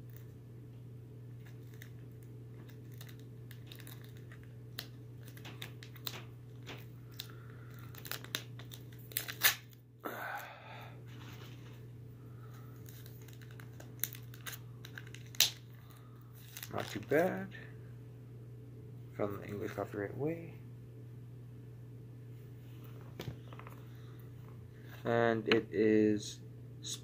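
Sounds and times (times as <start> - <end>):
wrapper crackling being torn: 1.4 - 9.8, 12.8 - 17.2.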